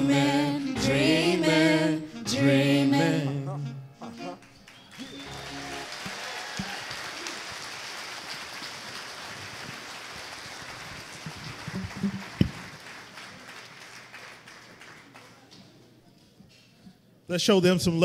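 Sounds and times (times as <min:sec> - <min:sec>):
audience applauding: 0:04.3 - 0:15.8.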